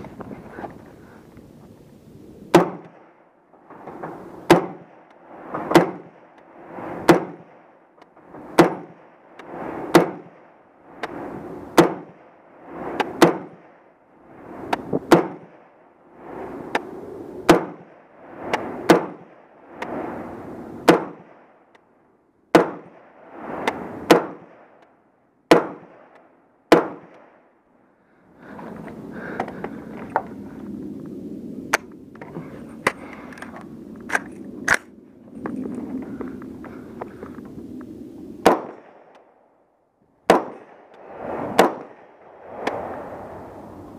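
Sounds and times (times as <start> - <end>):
rustling and movement: 0.0 - 1.9
rifle shots: 2.5 - 3.2, 4.4 - 7.7, 8.5 - 10.6, 11.7 - 12.4, 13.0 - 13.9, 15.1 - 15.8, 17.5 - 19.4, 20.8 - 21.6, 22.5 - 24.8, 25.5 - 26.1, 26.7 - 27.4, 38.4 - 39.1, 40.3 - 42.3.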